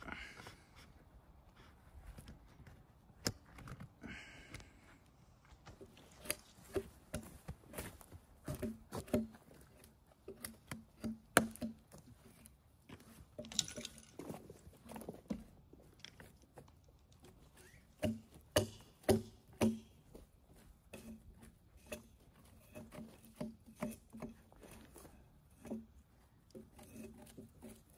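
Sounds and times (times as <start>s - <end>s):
hand tool scraping bark from log: 8.5s - 13.8s, 17.5s - 20.1s, 20.7s - 27.9s.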